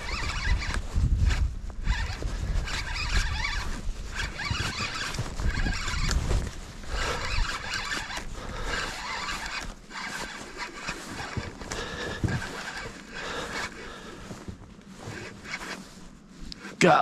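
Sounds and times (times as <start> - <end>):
fishing reel whirring: 0.0 - 6.2, 6.8 - 14.2
wind rumble on microphone: 0.0 - 9.5.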